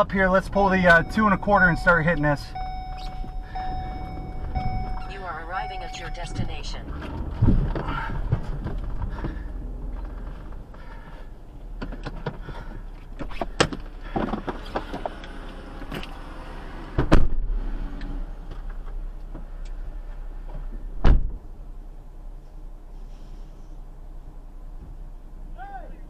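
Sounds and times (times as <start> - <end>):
steady low hum: 0.0 - 14.2
clicks and knocks in car cabin: 11.8 - 15.0
car door thumps: 21.0 - 21.4.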